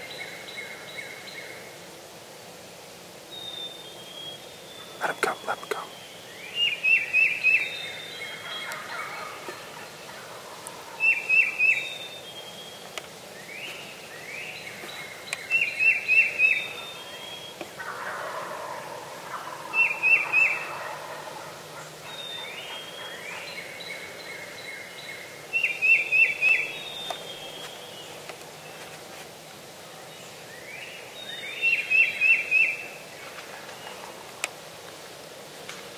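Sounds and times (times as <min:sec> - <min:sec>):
faint turkey calls: 0:04.8 - 0:06.0, 0:06.6 - 0:11.9, 0:14.9 - 0:24.2
turkeys gobbling: 0:08.3 - 0:11.5, 0:17.6 - 0:23.2.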